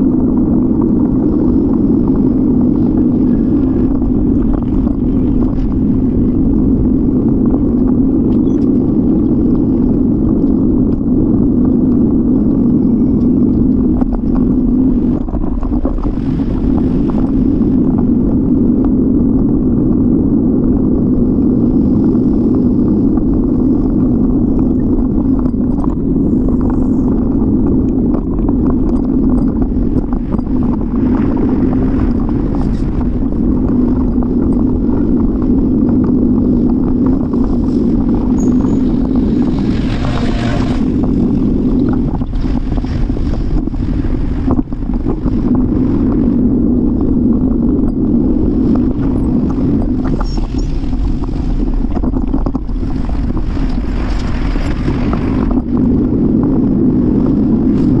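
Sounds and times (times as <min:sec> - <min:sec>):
wind and road rumble: 0:00.0 - 0:58.0
wind hissing: 0:29.0 - 0:47.4.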